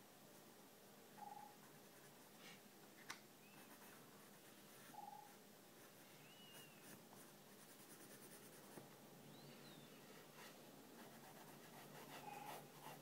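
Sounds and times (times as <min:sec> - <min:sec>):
pencil scratching on paper: 0:10.4 - 0:13.0.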